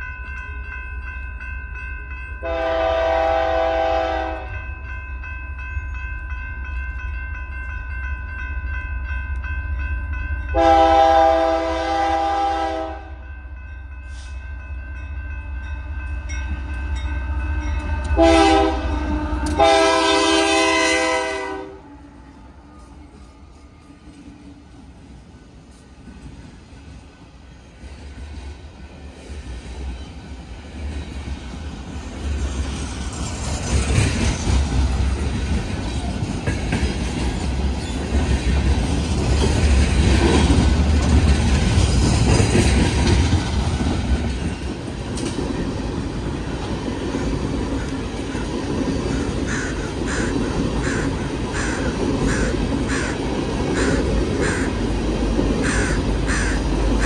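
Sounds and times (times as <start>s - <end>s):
freight train rumbling past: 0.0s - 57.0s
crow cawing: 49.1s - 54.8s, 55.6s - 56.7s.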